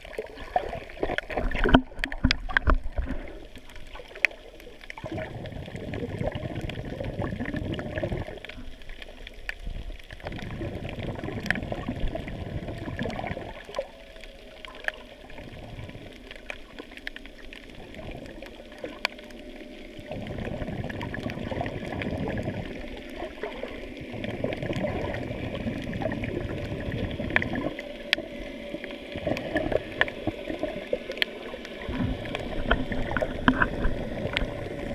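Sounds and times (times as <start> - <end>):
underwater rushing and gurgling: 0.0 - 34.9.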